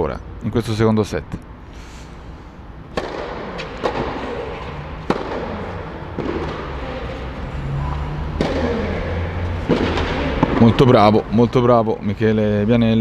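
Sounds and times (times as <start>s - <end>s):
rackets hitting tennis ball: 2.2s - 11.8s.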